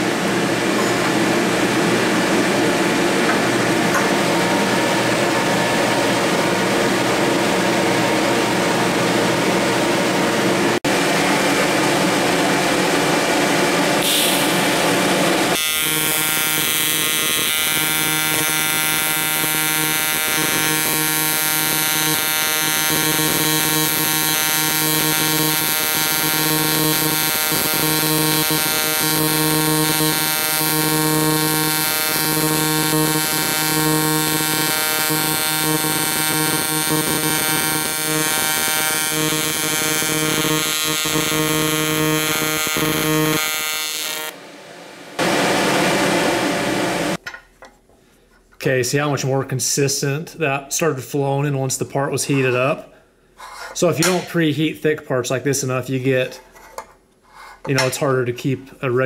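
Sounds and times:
welding arc buzzing: 0.0 - 44.4.

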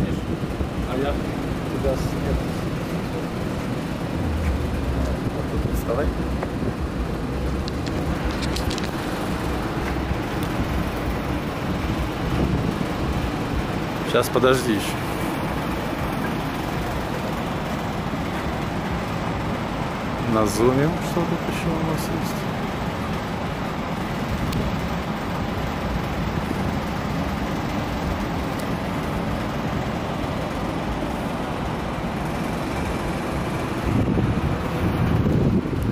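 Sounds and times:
wind buffeting microphone: 0.2 - 14.0, 23.8 - 35.9.

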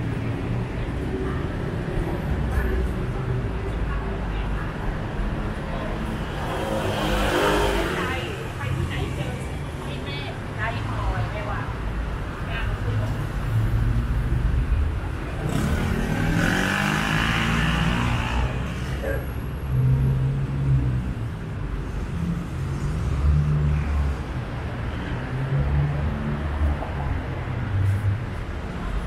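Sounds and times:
low traffic rumble: 0.0 - 29.0
vehicle passing: 5.6 - 9.6.

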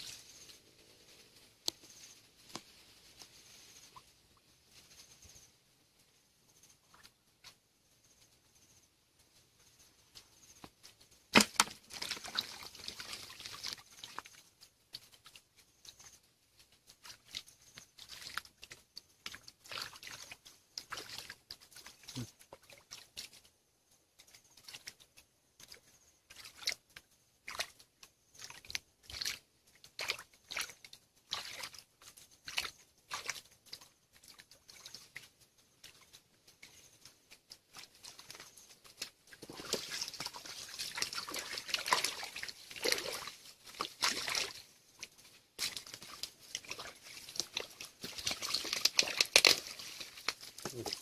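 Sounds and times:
hands splashing in muddy water: 11.3 - 15.4, 17.0 - 23.4, 25.6 - 51.0.

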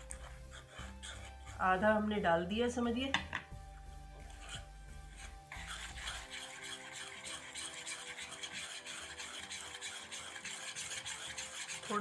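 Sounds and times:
wire whisk beating batter in bowl: 4.3 - 12.0.

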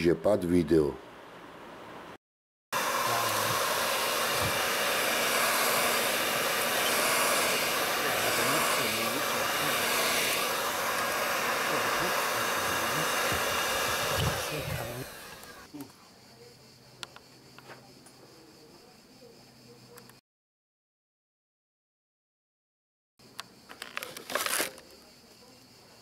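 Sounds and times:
heat gun blowing air: 2.8 - 15.7.

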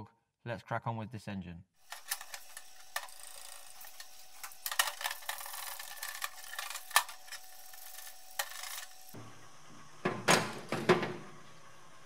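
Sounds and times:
solvent running from brush: 1.8 - 9.2.

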